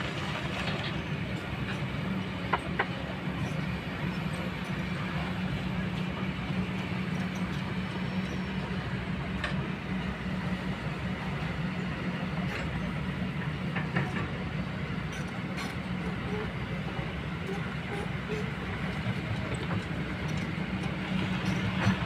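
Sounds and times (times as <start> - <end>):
excavator diesel engine running: 0.0 - 22.0.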